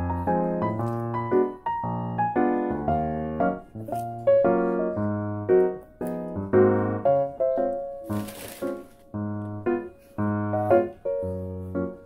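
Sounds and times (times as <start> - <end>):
light keyboard tune: 0.0 - 12.0.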